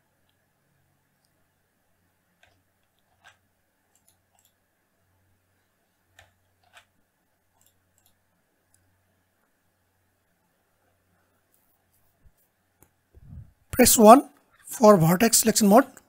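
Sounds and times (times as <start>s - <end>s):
faint low hum: 0.0s - 16.0s
mouse and keyboard clicks: 2.4s - 4.6s, 6.1s - 7.0s.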